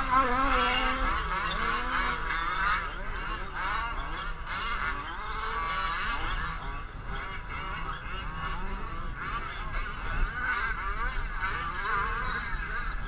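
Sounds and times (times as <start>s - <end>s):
small two-stroke engines revving: 0.0s - 3.3s.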